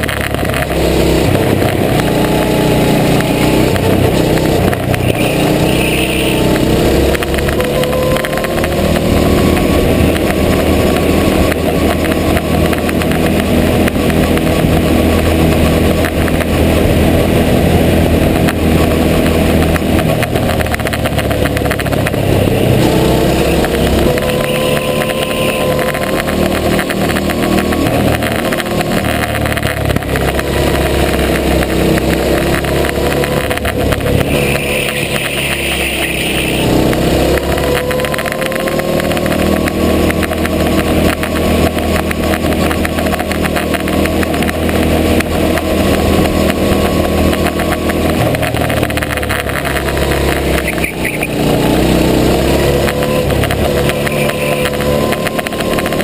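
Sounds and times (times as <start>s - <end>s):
go-kart engine running: 0.0s - 56.0s.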